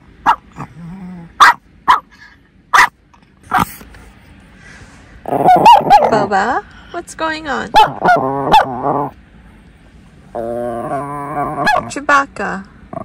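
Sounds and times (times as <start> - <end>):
small dog barking: 0.2 - 0.6, 1.4 - 2.1, 2.7 - 3.8, 5.3 - 6.3, 7.7 - 9.1, 11.5 - 11.9.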